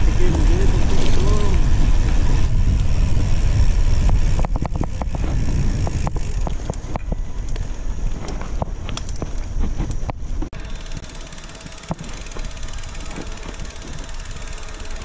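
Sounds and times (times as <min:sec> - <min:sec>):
wind rushing over microphone: 0:00.0 - 0:10.6
bicycle clicks and rattles: 0:00.0 - 0:15.0.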